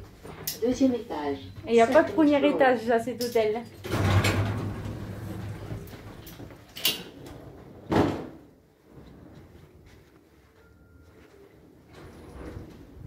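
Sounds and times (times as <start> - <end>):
elevator doors sliding open: 3.8 - 8.4.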